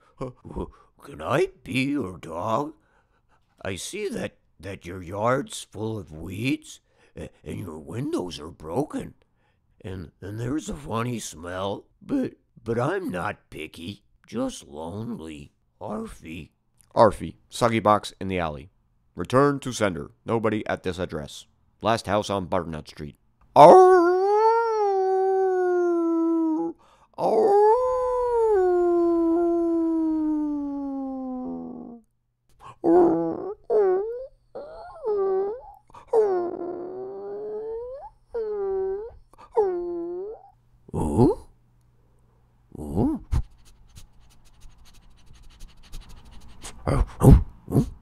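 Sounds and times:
dog howling: 23.6s - 32.0s, 32.8s - 40.5s
whimpering: 23.6s - 32.0s, 32.6s - 41.5s, 45.9s - 48.0s.

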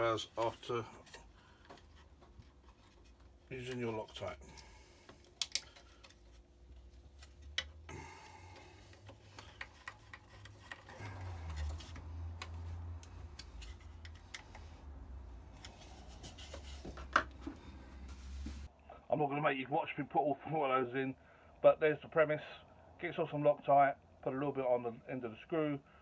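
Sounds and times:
screw ticking and rubbing: 8.9s - 15.8s.

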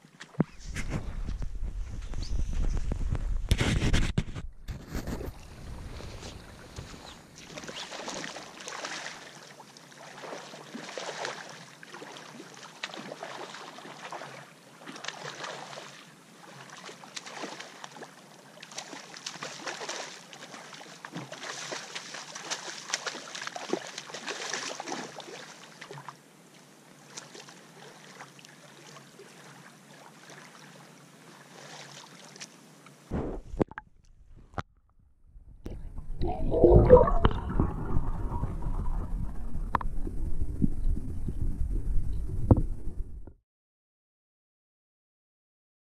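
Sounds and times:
small waves lapping on gravel shore: 5.4s - 26.1s.

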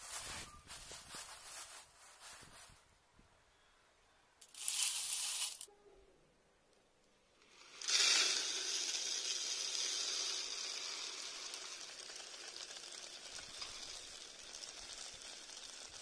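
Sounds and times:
grain trickling into plastic bowl: 4.4s - 5.7s, 7.5s - 16.0s.

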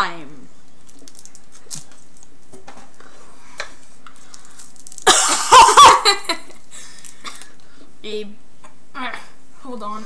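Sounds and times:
boy coughing: 5.1s - 6.4s.

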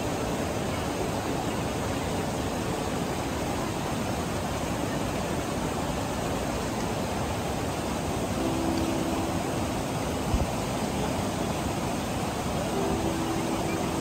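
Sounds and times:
stream rushing over boulders: 0.0s - 14.0s.

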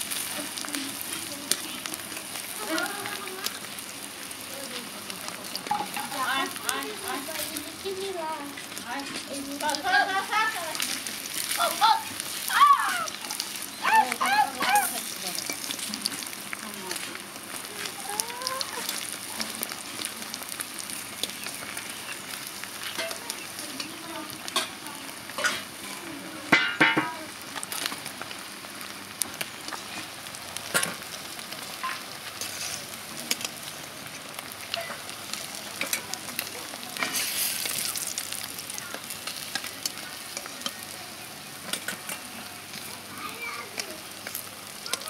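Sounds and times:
food sizzling in hot oil: 0.0s - 45.0s.

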